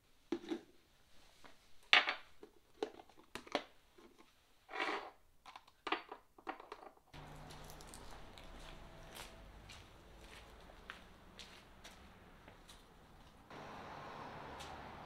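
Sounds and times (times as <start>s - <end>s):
snacks rustling: 7.2s - 10.6s.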